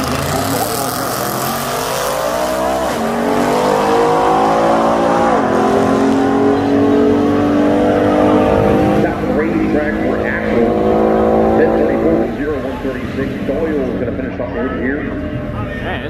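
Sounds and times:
drag racing cars accelerating: 0.0s - 16.0s.

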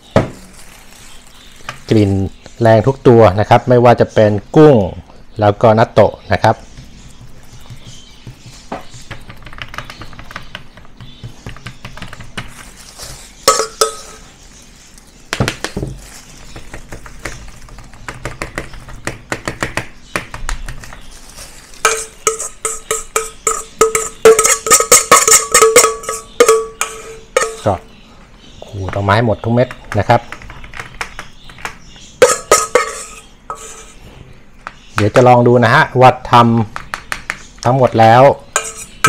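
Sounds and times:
spoon scraping metal tray: 12.8s - 14.4s, 21.7s - 27.8s, 32.2s - 34.3s, 38.5s - 39.0s
spoon tapping metal tray: 13.4s - 14.2s, 21.8s - 27.8s, 32.2s - 33.9s, 38.6s - 39.0s.

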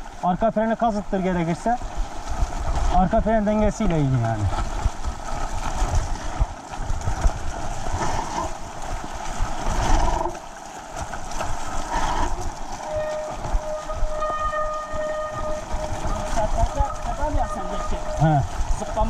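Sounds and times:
bike rattling: 0.0s - 19.0s
bike tyres on muddy track: 0.0s - 19.0s
wind on microphone: 11.0s - 19.0s.

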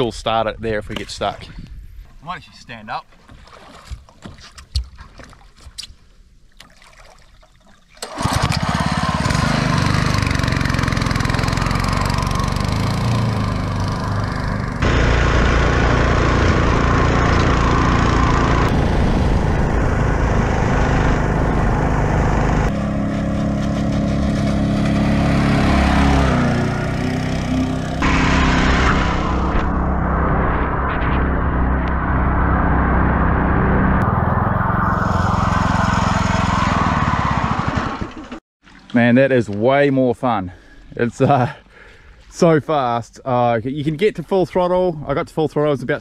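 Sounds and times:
boat motor running hard: 14.8s - 29.6s.

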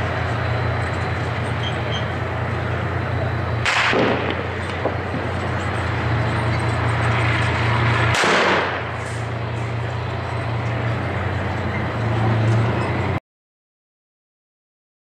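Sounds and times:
steady low rumble: 0.0s - 13.2s
gunshot with echo: 3.6s - 4.4s, 8.1s - 8.9s.

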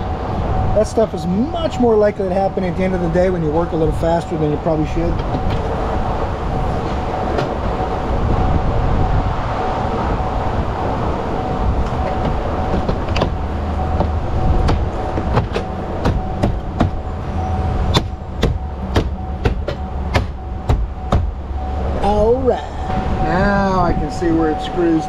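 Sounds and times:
faint constant hum: 0.0s - 25.0s
workshop rumble: 10.7s - 25.0s.

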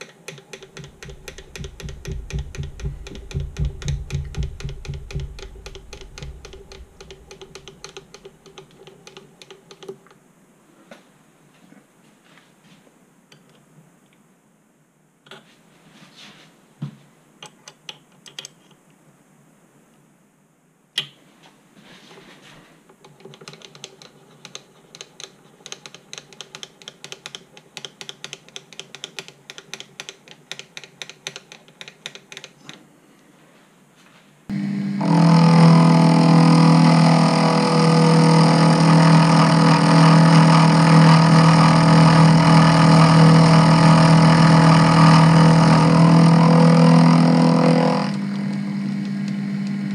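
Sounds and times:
handwheel clicking: 0.0s - 9.9s
machine drone with low hum: 0.8s - 7.8s, 34.5s - 49.9s.

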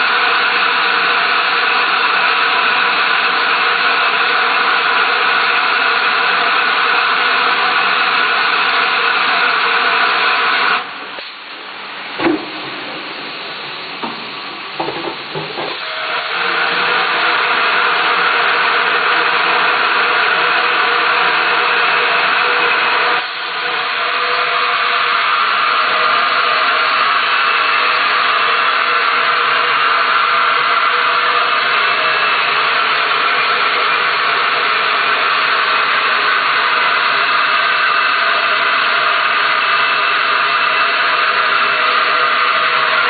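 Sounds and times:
filling machine hissing: 0.0s - 43.0s
sharp knocks: 14.0s - 15.8s.

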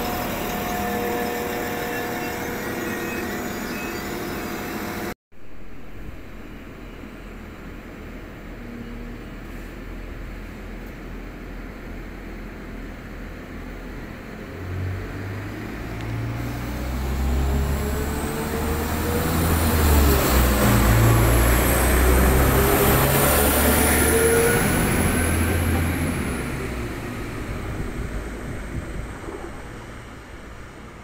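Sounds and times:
diesel train engines accelerating: 0.0s - 5.2s, 6.0s - 31.0s
high whine: 0.0s - 7.4s.

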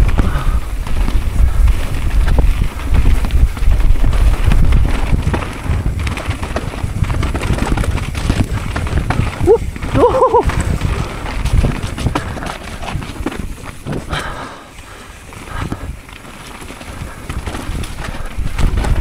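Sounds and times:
bike rattling over bumps: 0.0s - 19.0s
wind rumble on microphone: 0.0s - 19.0s.

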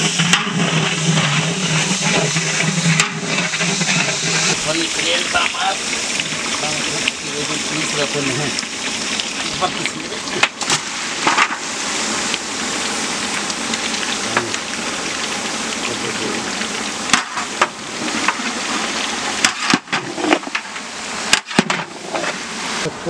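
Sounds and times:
meat sizzling in hot oil: 0.0s - 22.9s.

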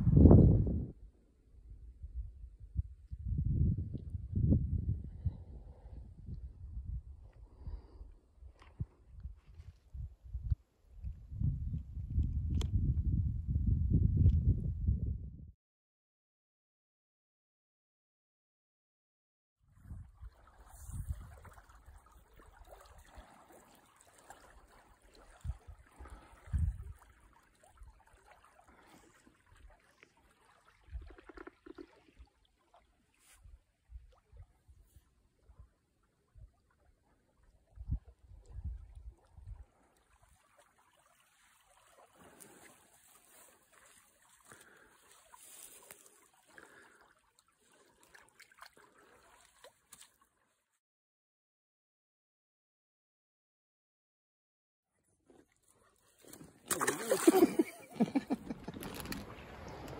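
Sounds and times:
stream flowing and trickling: 19.7s - 50.8s, 55.0s - 59.9s.

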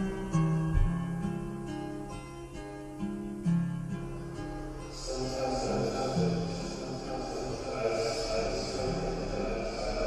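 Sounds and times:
music with slow held notes: 0.0s - 7.6s.

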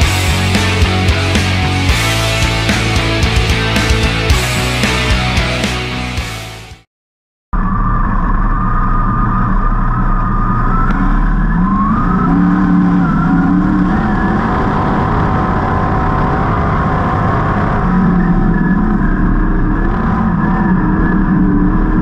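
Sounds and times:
race car engine: 0.0s - 6.8s, 7.6s - 22.0s
rock music: 0.0s - 6.9s.

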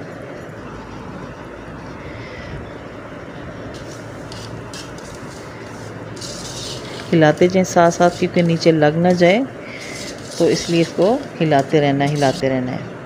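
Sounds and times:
steady rushing background noise: 0.0s - 13.0s
metal spoon scraping a pot: 3.8s - 12.4s.

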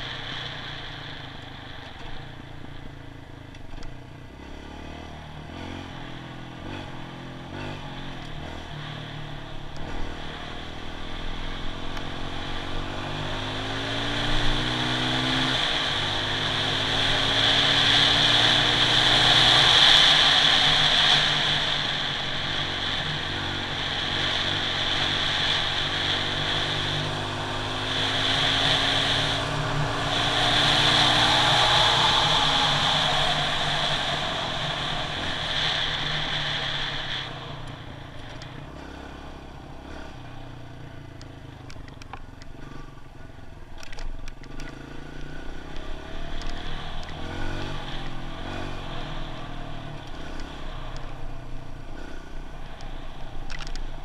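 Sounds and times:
dirt bike engine shifting gears: 13.6s - 51.2s, 51.8s - 54.0s.

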